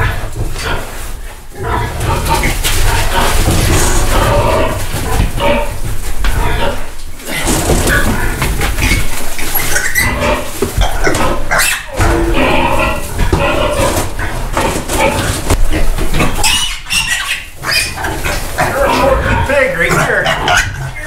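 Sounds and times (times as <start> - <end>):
piglets squealing: 6.4 - 14.3, 16.2 - 21.0.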